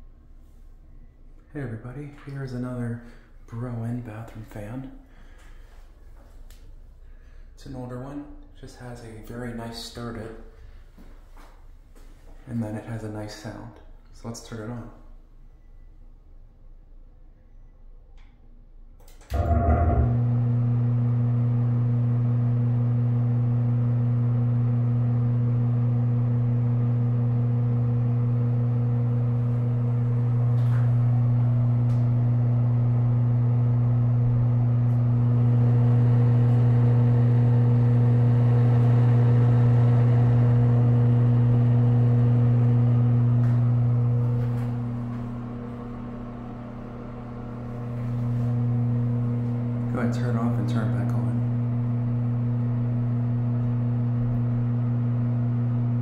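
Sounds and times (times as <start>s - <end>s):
exhaust fan humming: 19.0s - 56.0s.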